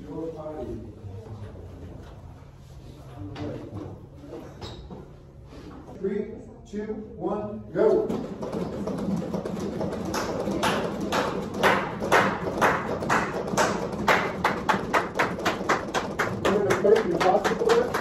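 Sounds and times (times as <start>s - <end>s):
rhythmic clicking of chest compressions: 7.9s - 18.0s.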